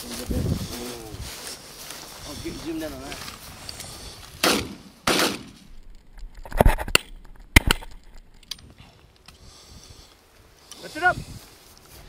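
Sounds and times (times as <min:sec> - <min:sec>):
shotgun shot: 0:04.4 - 0:05.6
sharp metallic clicks: 0:05.8 - 0:08.6.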